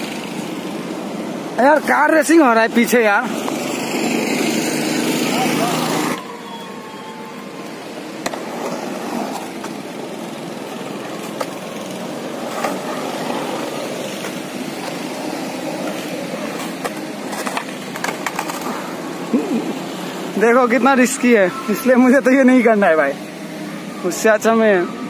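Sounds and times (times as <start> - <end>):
skateboard wheels rolling on concrete: 0.0 - 25.0
skateboard clacks: 8.1 - 19.0.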